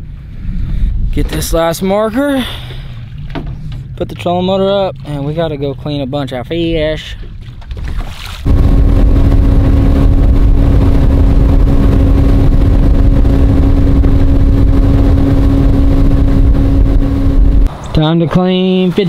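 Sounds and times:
rushing wind and water: 0:00.0 - 0:17.8
outboard motor running: 0:06.9 - 0:17.7.

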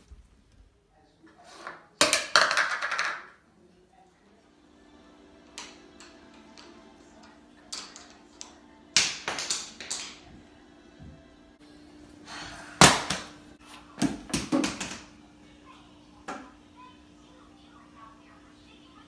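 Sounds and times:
objects striking the floor: 0:01.5 - 0:03.4, 0:05.5 - 0:10.4, 0:14.0 - 0:15.1.

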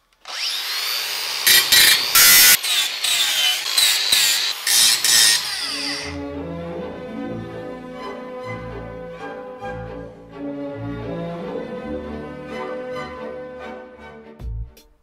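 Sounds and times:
grinder cutting steel: 0:00.0 - 0:06.2
angle grinder whine: 0:00.1 - 0:06.2
music: 0:06.0 - 0:15.0.

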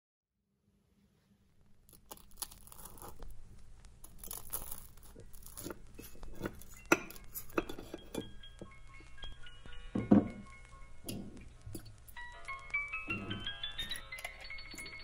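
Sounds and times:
knife crunching toasted bread: 0:01.9 - 0:03.4, 0:04.0 - 0:08.1.

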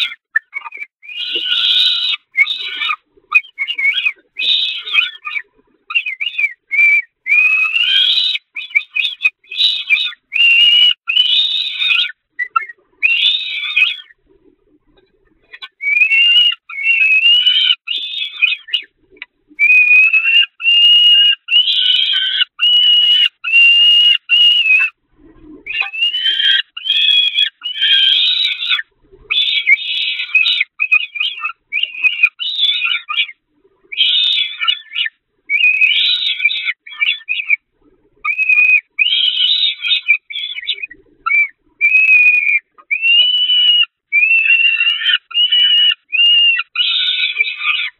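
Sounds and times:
falcon chick begging calls: 0:00.0 - 0:14.1, 0:15.4 - 0:18.9, 0:25.7 - 0:37.6.

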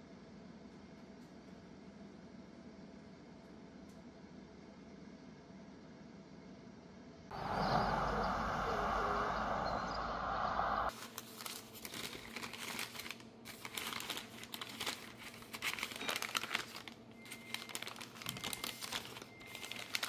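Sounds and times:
newspaper crinkling and rustling: 0:10.9 - 0:20.0.

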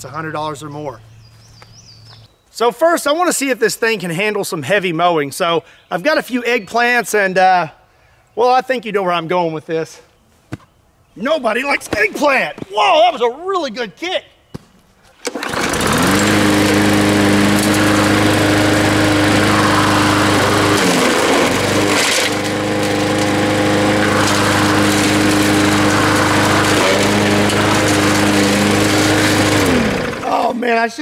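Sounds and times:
mower blade chopping vegetables: 0:15.2 - 0:30.5
lawn mower engine running: 0:15.2 - 0:30.6.

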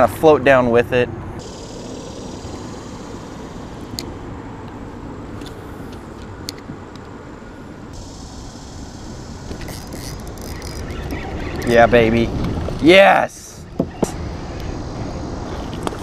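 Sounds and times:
wind buffeting microphone: 0:09.1 - 0:16.0
spinning reel clicking: 0:09.6 - 0:11.7.

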